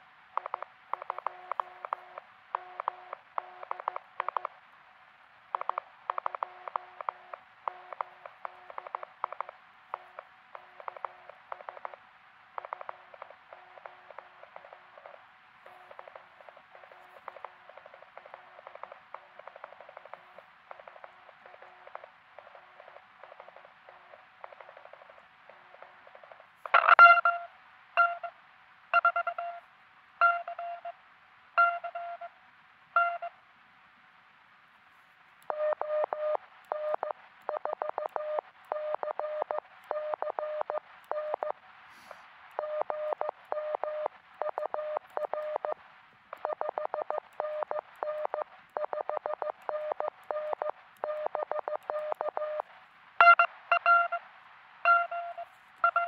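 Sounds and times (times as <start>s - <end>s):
morse code tones: 26.8s - 28.3s, 29.0s - 29.6s, 30.2s - 30.9s, 31.6s - 32.3s, 33.0s - 33.3s, 53.2s - 54.2s, 54.9s - 56.0s.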